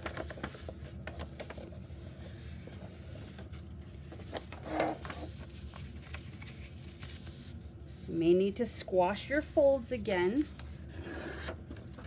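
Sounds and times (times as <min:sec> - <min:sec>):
paper fold crackling: 0:00.0 - 0:08.1
paper rustling and creasing: 0:00.0 - 0:08.2, 0:10.2 - 0:12.0.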